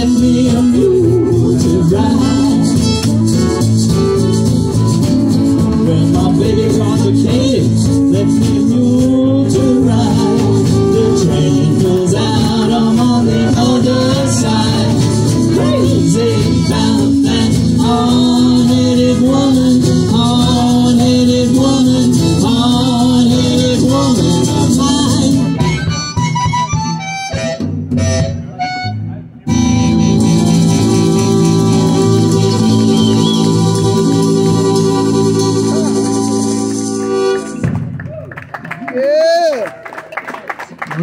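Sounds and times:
live band playing: 0.0s - 38.3s.

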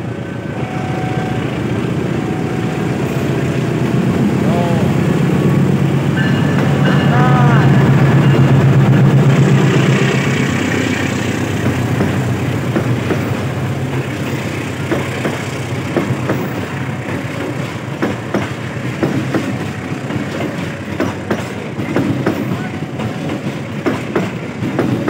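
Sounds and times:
diesel locomotive drone: 0.0s - 25.0s
train wheels clicking over rail joints: 8.1s - 25.0s.

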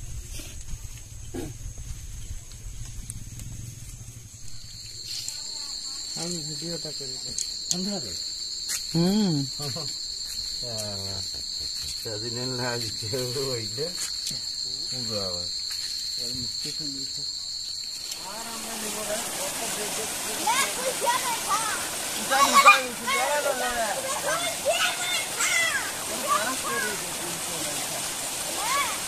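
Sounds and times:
insects trilling: 0.0s - 29.0s
men talking: 10.6s - 15.5s, 18.2s - 28.2s.

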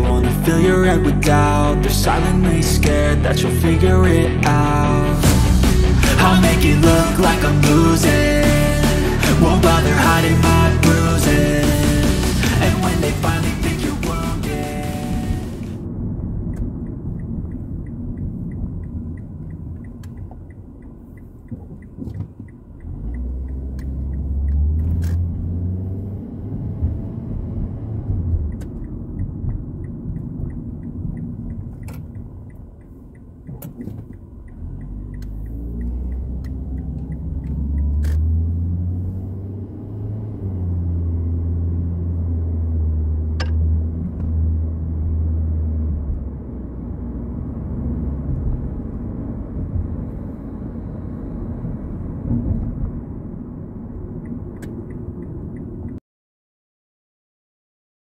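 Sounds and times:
car engine and road noise: 0.0s - 56.0s
light fast ticking: 28.4s - 38.2s.

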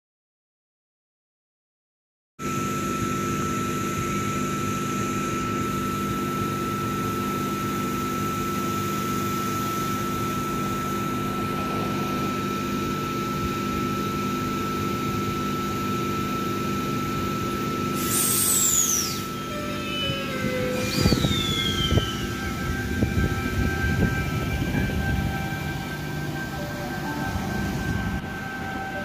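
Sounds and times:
high whine: 2.4s - 29.0s
train equipment humming: 5.3s - 29.0s.

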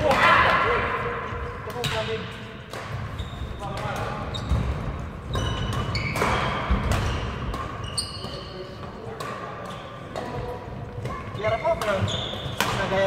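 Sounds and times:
racket striking shuttlecock: 1.6s - 13.0s
shoes squeaking on court: 2.9s - 13.0s.

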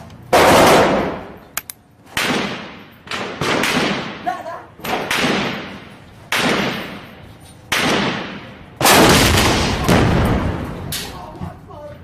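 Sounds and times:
gunshots with long echo: 0.3s - 1.2s, 2.2s - 4.2s, 4.9s - 7.0s, 7.7s - 10.8s.

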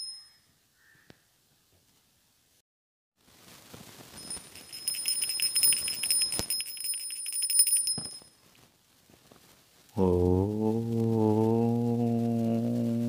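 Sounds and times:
small bell ringing rapidly: 0.0s - 0.3s, 4.2s - 8.4s.

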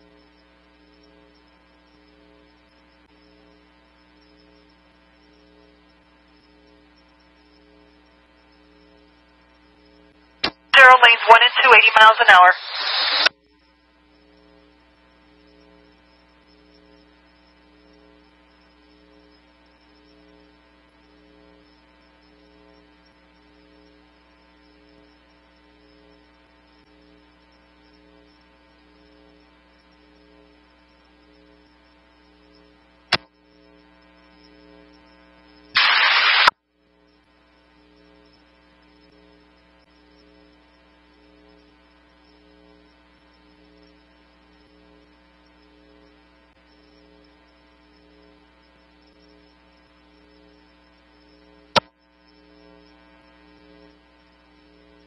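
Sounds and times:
burst of radio static: 10.4s - 13.3s, 35.8s - 36.6s.

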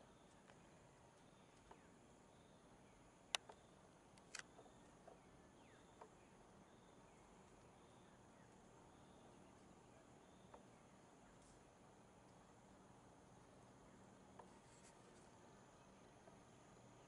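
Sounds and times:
faint insect hum: 0.0s - 17.0s
sharp clicks: 3.3s - 4.6s.

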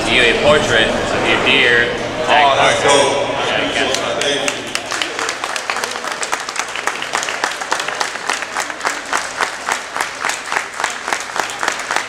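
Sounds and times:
audience applauding: 3.9s - 12.0s
sharp nearby claps: 3.9s - 12.0s.

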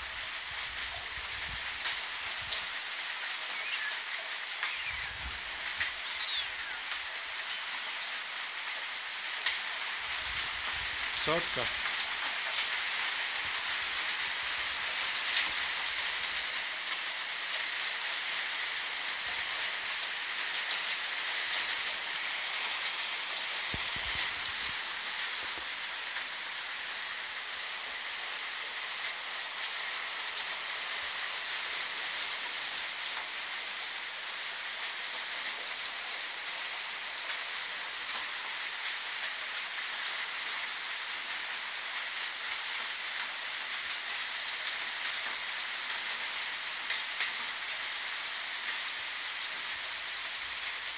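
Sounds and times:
steady rain falling: 0.0s - 50.9s.

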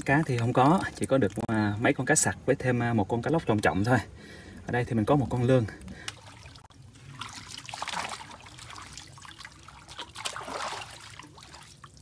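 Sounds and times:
water splashing by hand: 6.0s - 12.0s.

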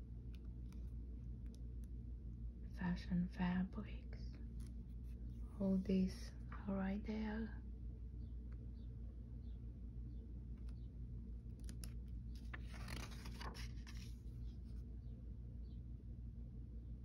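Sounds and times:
low steady hum: 0.0s - 17.0s
paper pages rustling: 4.5s - 5.5s, 11.5s - 14.8s.

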